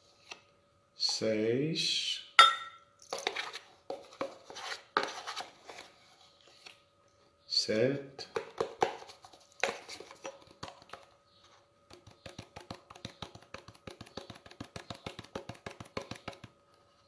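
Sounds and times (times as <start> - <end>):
spoon tapping and scraping a tin: 8.2 - 11.0, 11.9 - 16.5.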